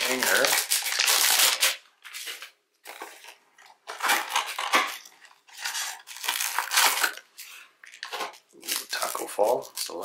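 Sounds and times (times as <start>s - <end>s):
packaging tearing and crinkling: 0.0s - 10.0s.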